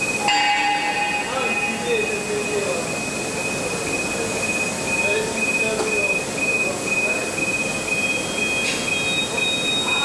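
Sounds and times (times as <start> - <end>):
high-pitched whine: 0.0 - 8.5
factory machinery din: 0.0 - 10.0
higher tone: 0.2 - 2.7.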